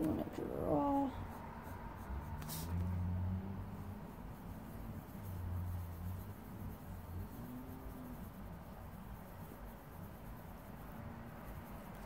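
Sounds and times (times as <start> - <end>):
pencil scratching on paper: 0.0 - 12.0.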